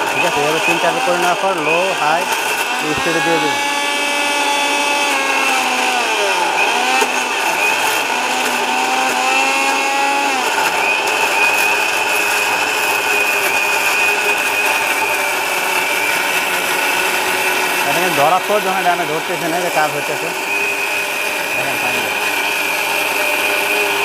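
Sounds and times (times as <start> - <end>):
mixer grinder motor running: 0.0 - 24.0.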